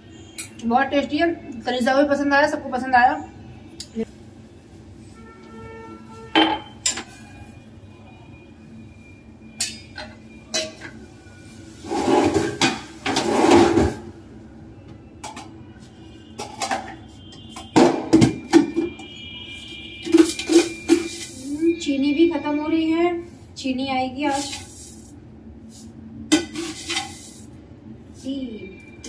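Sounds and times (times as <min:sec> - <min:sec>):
metal pots clinking and knocking: 0:06.3 - 0:07.1, 0:20.0 - 0:21.3.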